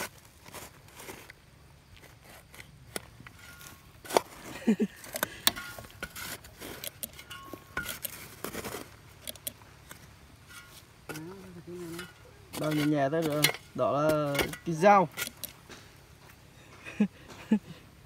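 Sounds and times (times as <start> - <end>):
metallic clinks and knocks: 6.8 - 8.2.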